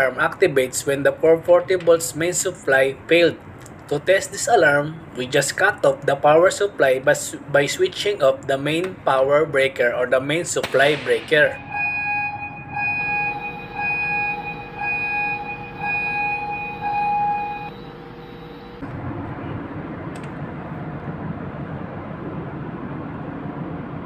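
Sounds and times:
steady machinery noise: 9.7s - 24.0s
pulsing alarm buzzer: 11.6s - 18.8s.

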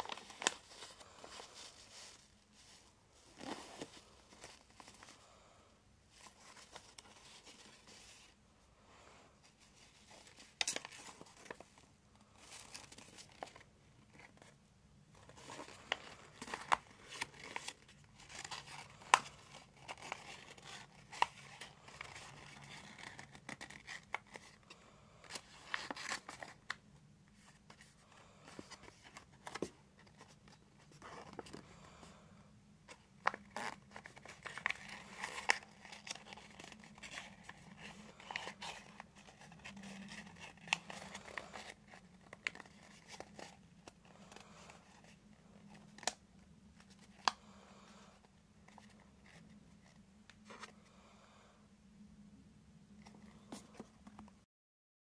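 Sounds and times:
paper rustling and crinkling: 0.0s - 5.2s, 6.1s - 8.4s, 9.4s - 31.7s, 32.9s - 47.4s, 48.1s - 50.8s
crisp paper crease clicks: 32.9s - 46.2s.

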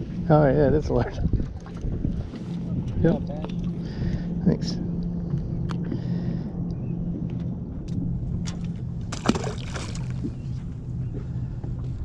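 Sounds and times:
low hum: 0.0s - 12.0s
splash in water: 9.1s - 10.2s.

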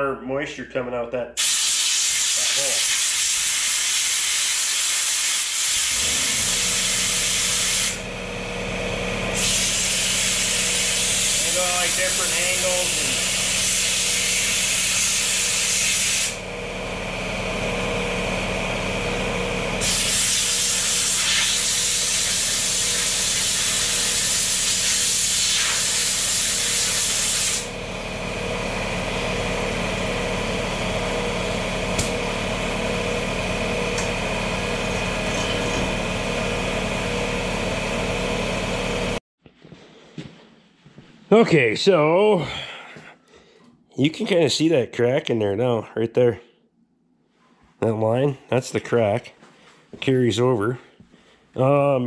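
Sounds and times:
steady machine hum: 5.9s - 39.2s
compressed air blowgun hissing: 9.4s - 16.4s, 19.8s - 27.7s.

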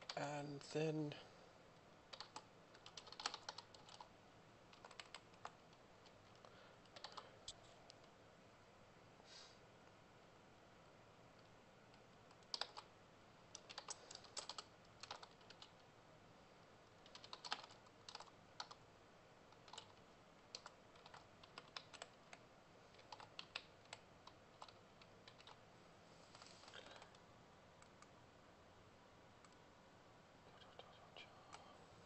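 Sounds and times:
typing on computer keyboard: 2.1s - 4.1s, 4.7s - 7.3s, 11.4s - 12.9s, 13.5s - 15.8s, 17.0s - 18.8s, 19.5s - 25.6s.

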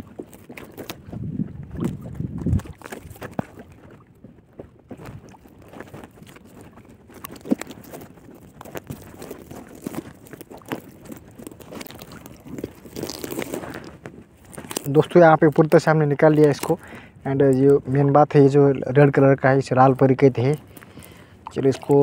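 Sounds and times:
wind rumble on microphone: 0.0s - 16.2s
nylon net rustling: 5.0s - 16.9s, 20.4s - 22.0s.

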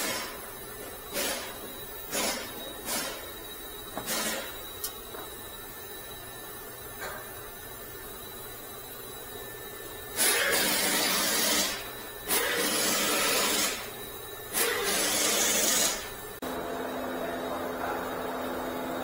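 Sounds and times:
loud hissing bursts: 0.0s - 4.7s, 10.1s - 16.3s.

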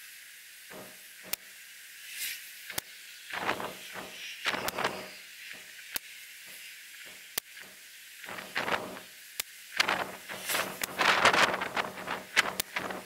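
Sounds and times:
rustling handling noise: 9.8s - 13.0s.

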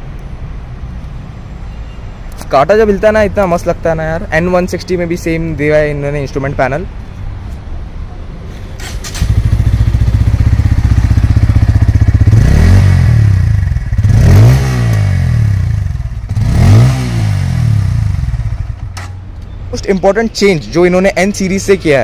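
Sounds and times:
motorcycle engine idling and revving: 8.8s - 19.5s.

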